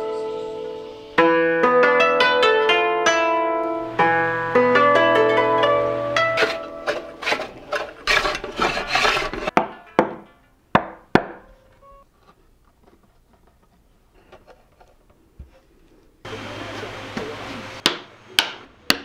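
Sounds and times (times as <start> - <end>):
hand tool rasping wood: 6.2 - 9.5
sharp knocks on wood: 10.8 - 11.4.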